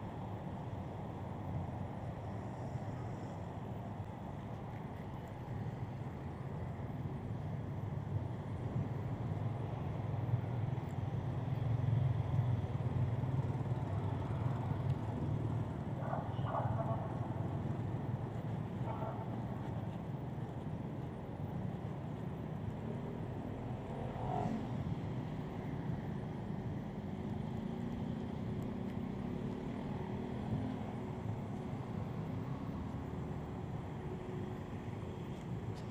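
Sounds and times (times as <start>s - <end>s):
road traffic engine rumble: 11.5s - 35.9s.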